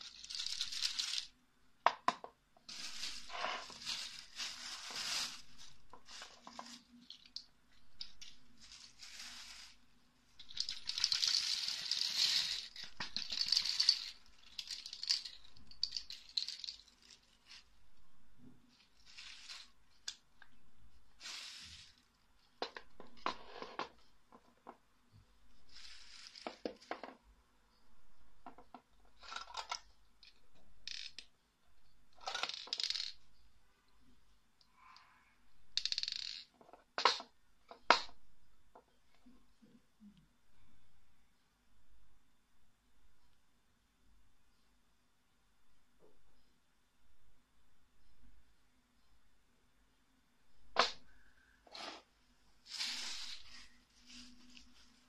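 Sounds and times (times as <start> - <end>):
capsules rattling on plastic tray: 0.0 - 1.3, 10.4 - 16.9, 32.2 - 33.2, 35.8 - 37.2.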